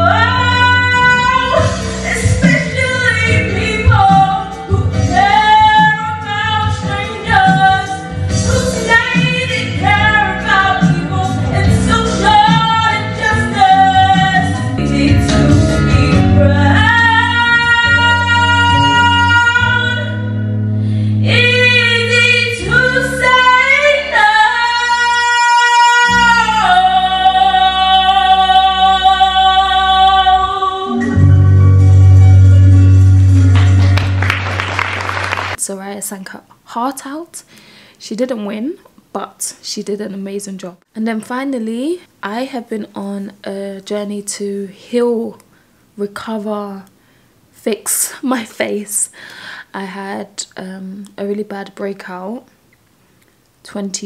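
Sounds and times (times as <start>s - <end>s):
woman singing: 0.0s - 20.4s, 21.2s - 31.7s
instrumental accompaniment: 28.6s - 35.6s.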